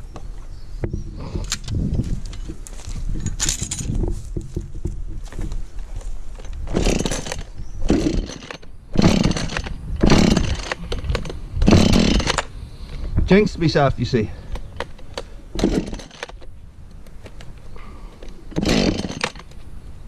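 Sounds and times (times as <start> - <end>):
chainsaw pull-start surges: 6.7 - 12.5, 15.6 - 16.4, 18.5 - 19.5.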